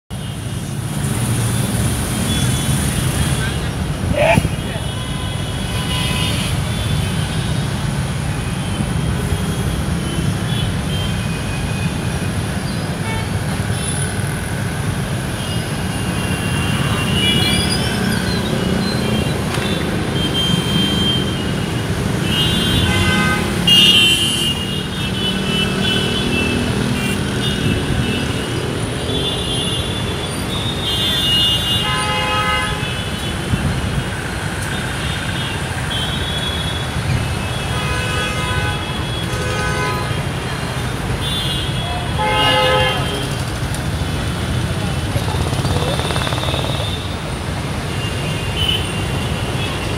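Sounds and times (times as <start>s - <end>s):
road traffic rumble: 0.1s - 49.9s
vehicle horns tooting: 22.2s - 28.5s, 29.1s - 33.4s, 35.2s - 40.5s, 41.1s - 43.5s.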